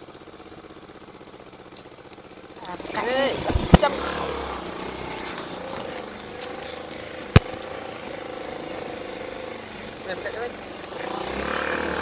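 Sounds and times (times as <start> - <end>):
small engine running: 0.0 - 12.0
sharp click: 7.4 - 7.7.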